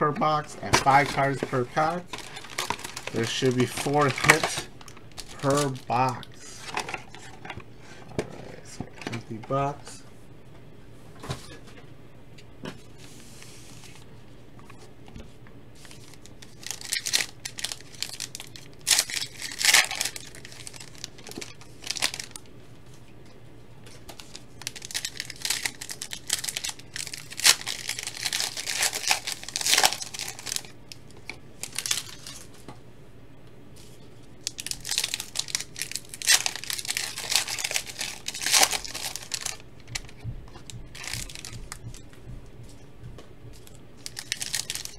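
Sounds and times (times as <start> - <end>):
foil wrappers tearing and crinkling: 0.6 - 7.3, 15.8 - 22.5, 24.0 - 32.5, 33.8 - 42.0, 43.6 - 44.9.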